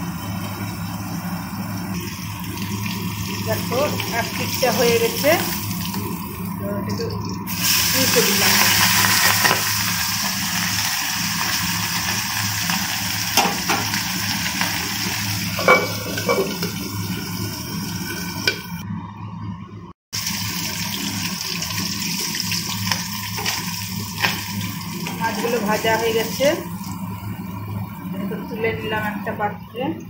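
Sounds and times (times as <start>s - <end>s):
fish frying in hot oil: 0.0s - 18.5s, 20.2s - 29.8s.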